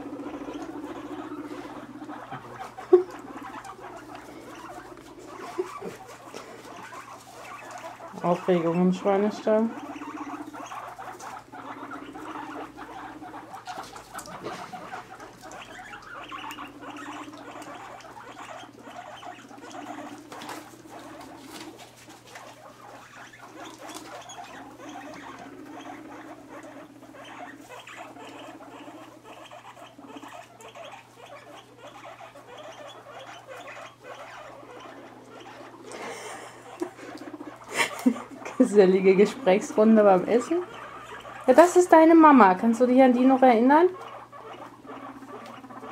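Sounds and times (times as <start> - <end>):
guinea pigs rumbling: 0.0 - 45.9.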